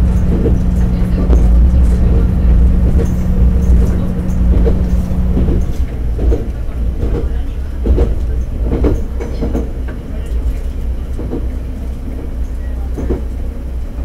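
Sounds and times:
steady hum: 0.0 - 8.9
railcar engine and wheel rumble: 0.0 - 14.0
wheels clicking over rail joints: 0.0 - 14.0.

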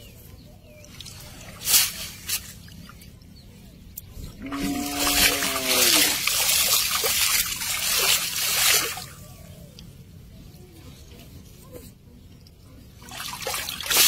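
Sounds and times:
water splashing and streaming: 4.1 - 9.4, 13.0 - 14.0.

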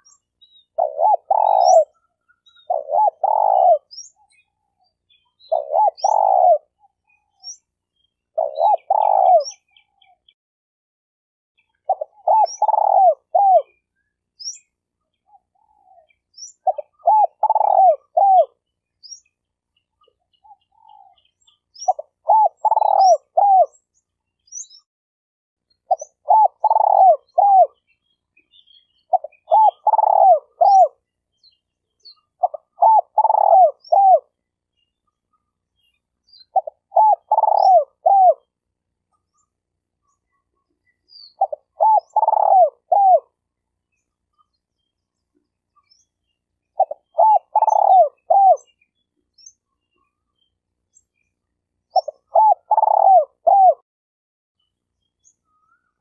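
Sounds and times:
dove cooing: 0.0 - 4.6, 5.4 - 7.6, 8.3 - 10.2, 11.7 - 13.9, 15.3 - 18.6, 20.4 - 23.8, 25.9 - 27.8, 29.0 - 31.1, 32.1 - 34.4, 36.4 - 38.5, 40.4 - 43.4, 46.7 - 48.8, 51.9 - 53.8
small birds chirping: 0.0 - 10.4, 11.6 - 24.9, 25.6 - 53.8, 54.6 - 56.0.

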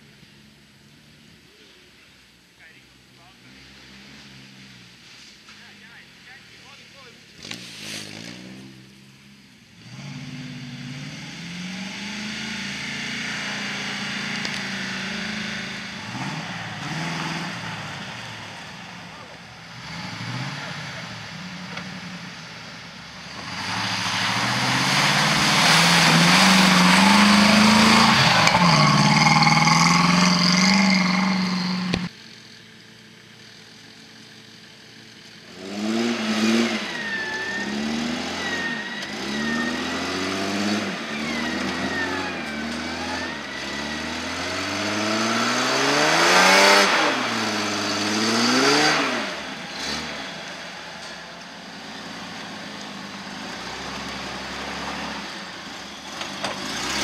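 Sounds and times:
engine revving hard: 9.8 - 21.7, 23.2 - 32.1, 35.5 - 50.8, 53.0 - 57.0
tyres churning through mud: 10.8 - 32.1, 35.5 - 57.0.

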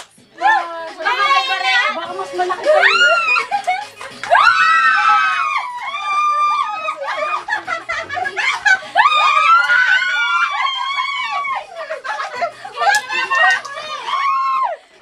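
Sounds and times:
women shrieking with laughter: 2.6 - 3.7, 4.3 - 14.8.

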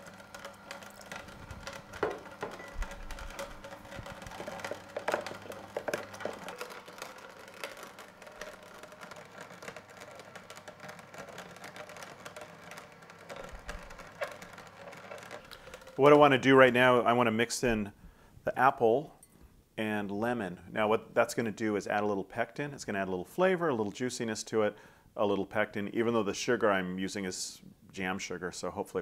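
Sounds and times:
crackling of ground seeds: 0.0 - 16.8
juicer motor hum: 0.0 - 16.9.

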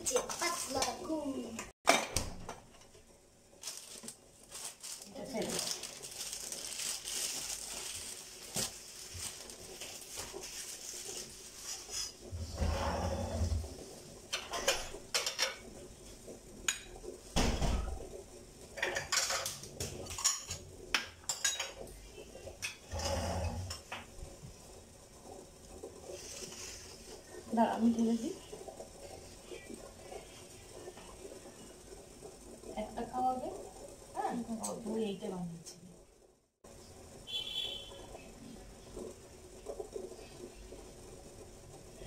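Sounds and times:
plates and spoon clinking: 18.8 - 21.8.

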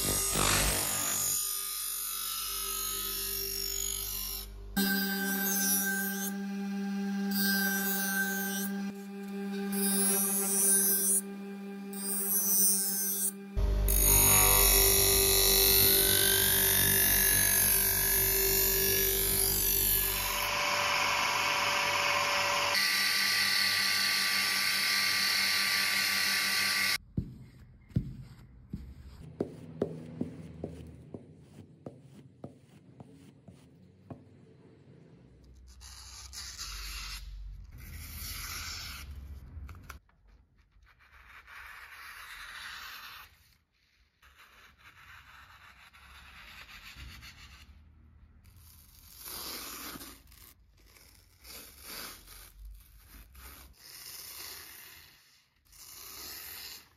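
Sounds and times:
background music: 0.0 - 20.3.

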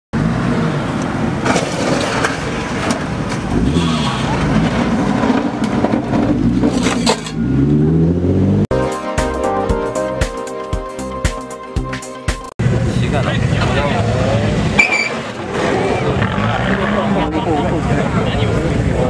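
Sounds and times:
car engine revving: 0.2 - 8.7, 12.6 - 19.0
car underside scraping concrete: 1.4 - 7.5.

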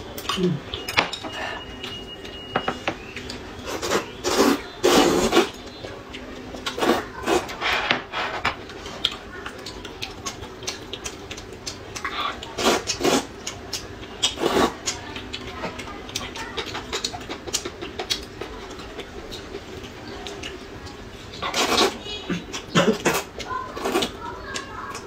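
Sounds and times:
slurping noodles: 3.6 - 5.6, 6.6 - 8.4, 12.1 - 13.3, 14.3 - 14.8, 21.4 - 22.0.

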